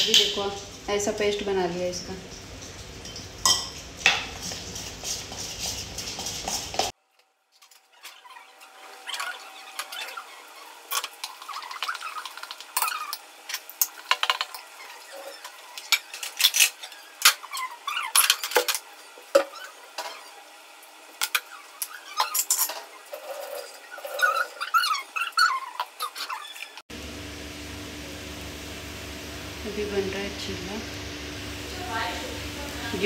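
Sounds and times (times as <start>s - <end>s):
steel utensils clattering: 0.0s - 0.6s, 21.2s - 24.5s.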